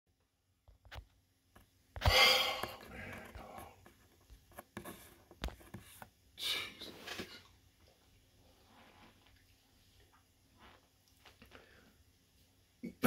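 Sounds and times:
breathy sounds: 2.0 - 3.8
soft rustling: 6.9 - 12.6.

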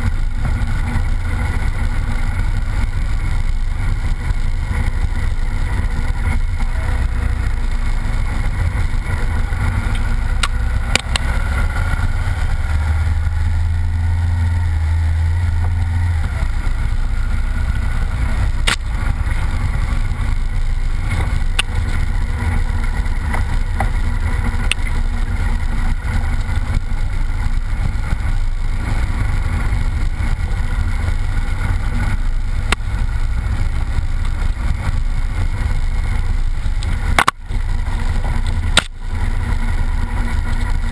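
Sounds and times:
tyres on wet dirt: 0.0 - 40.9
vehicle engine running: 0.0 - 40.9
sharp ticks: 9.8 - 11.5, 18.5 - 19.8.

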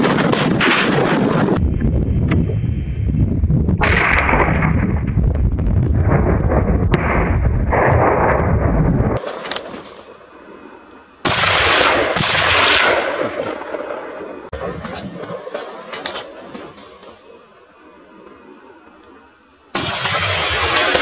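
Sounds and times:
loud low rumbling: 1.0 - 9.2
gunshots with echoing decay: 11.2 - 15.7, 19.8 - 21.0.

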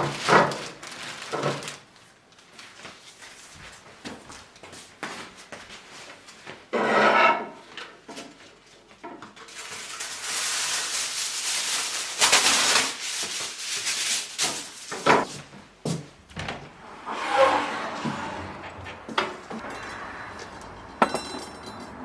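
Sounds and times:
kitchen foil crinkling: 0.0 - 3.4, 9.4 - 15.4.

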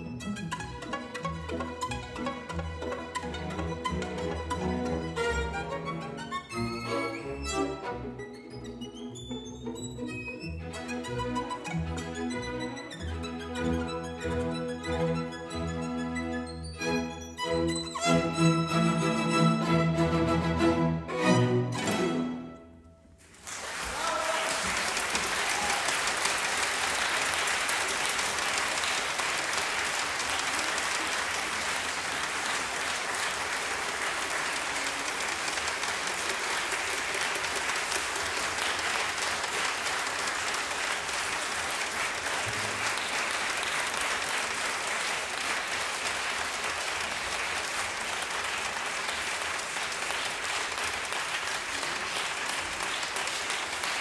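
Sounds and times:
audience applauding: 23.2 - 54.0.

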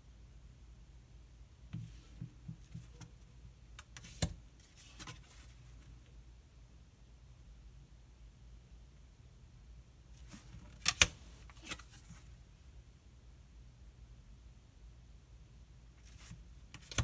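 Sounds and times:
cards tapping and rustling: 3.8 - 5.5, 16.1 - 17.0.

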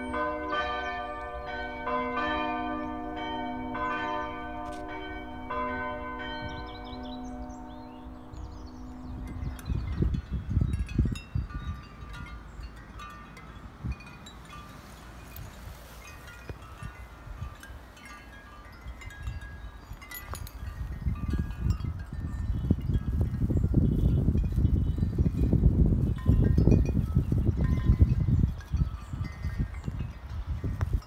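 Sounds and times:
chime-like ringing tones: 0.0 - 23.7
wind buffeting microphone: 0.0 - 31.0.

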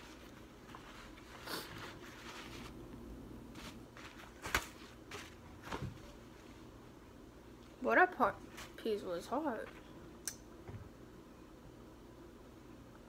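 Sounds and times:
paper napkin rustling: 0.0 - 6.8, 8.4 - 8.9.

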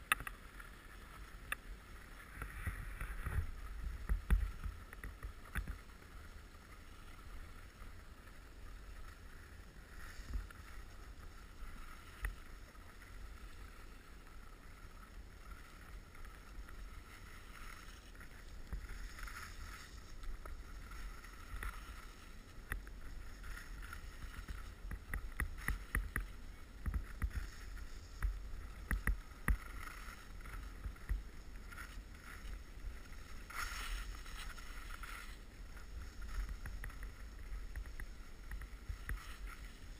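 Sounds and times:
skis sliding over snow: 0.0 - 39.9
wind rumbling on microphone: 0.0 - 39.9.

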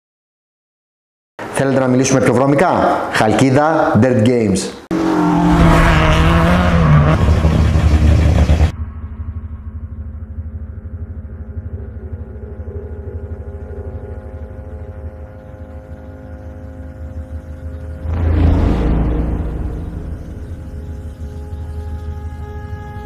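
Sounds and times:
rally car engine revving: 4.9 - 8.7.

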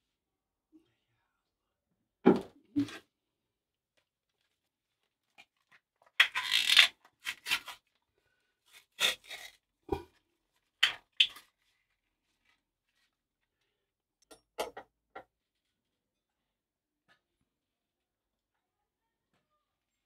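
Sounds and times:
crinkling scrapes and rustles: 4.2 - 13.7.

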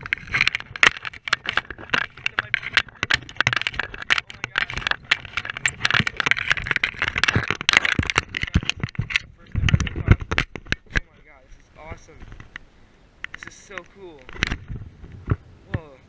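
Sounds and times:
fish flopping on wooden boards: 0.0 - 11.1.

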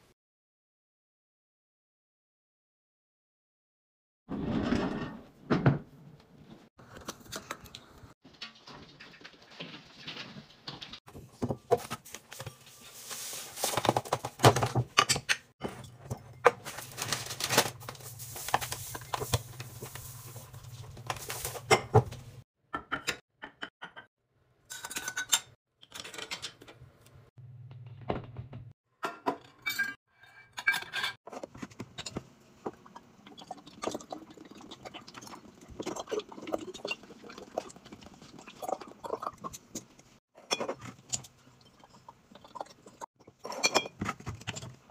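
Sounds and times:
ceramics and glass clinking on counter: 43.4 - 44.6.

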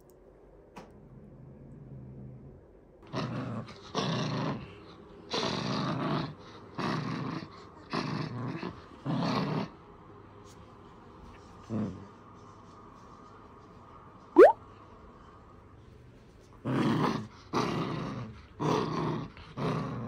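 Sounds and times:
puppy play growling: 0.8 - 12.5, 16.2 - 20.0.

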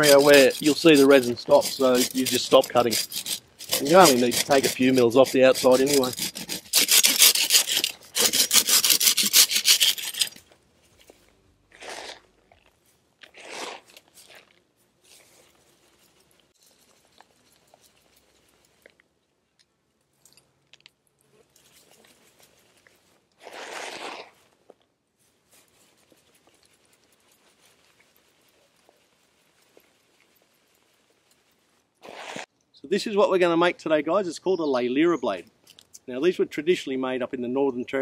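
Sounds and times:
pruning saw rasping on trunk: 0.0 - 10.4
soft rustles of fern fronds: 14.1 - 19.0, 21.3 - 32.4.

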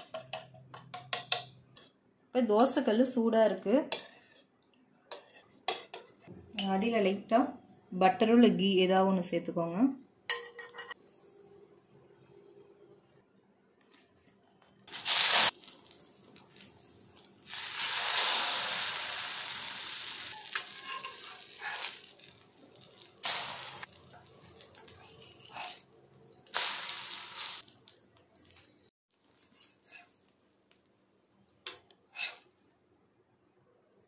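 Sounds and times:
bread frying on a hot griddle: 14.9 - 32.5.

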